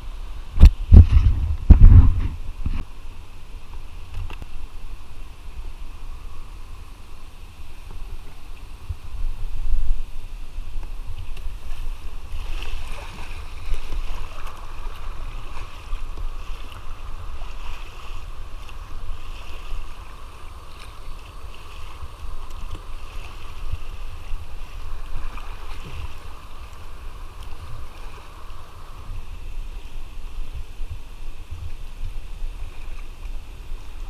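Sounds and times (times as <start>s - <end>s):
water rushing along hull: 0.0s - 34.0s
paddle strokes splashing: 0.2s - 34.0s.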